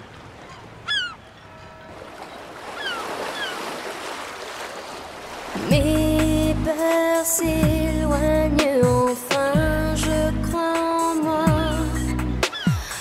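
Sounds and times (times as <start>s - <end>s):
seagulls calling: 0.0s - 4.2s, 11.5s - 13.0s
sea waves washing: 0.0s - 7.5s.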